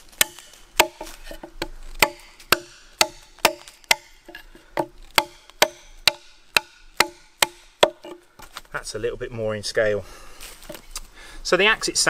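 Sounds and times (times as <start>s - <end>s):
axe chopping wood: 0.0s - 8.6s.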